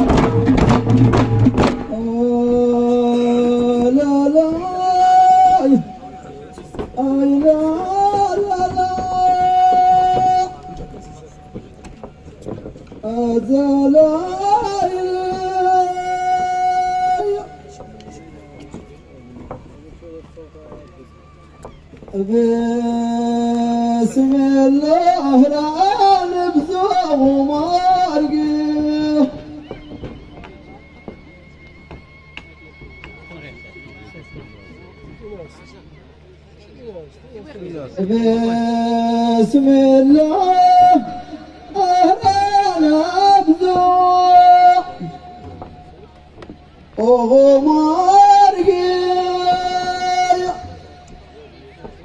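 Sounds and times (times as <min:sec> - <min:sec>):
frame drums beating: 0:00.0 - 0:36.4, 0:38.1 - 0:52.0
man singing a chant: 0:01.8 - 0:11.9, 0:12.6 - 0:18.5, 0:22.1 - 0:30.2, 0:38.0 - 0:45.8, 0:46.9 - 0:51.4.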